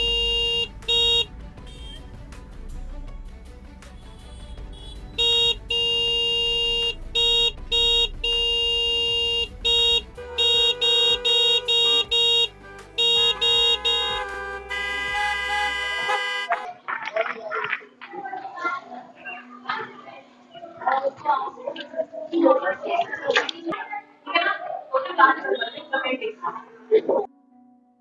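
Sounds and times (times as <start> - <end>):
scooter horn honking: 0.0 - 2.0, 4.3 - 16.6.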